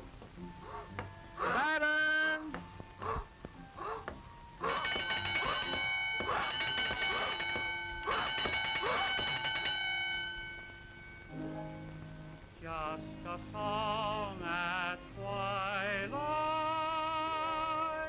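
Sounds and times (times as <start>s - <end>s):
person singing operatically: 1.4s - 2.6s, 12.6s - 18.0s
ringing tones: 4.6s - 11.9s.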